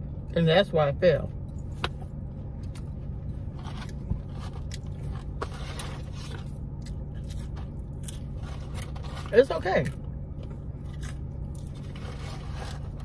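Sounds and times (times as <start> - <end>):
steady low hum: 0.0 - 13.0
chewing crispy fries: 3.6 - 13.0.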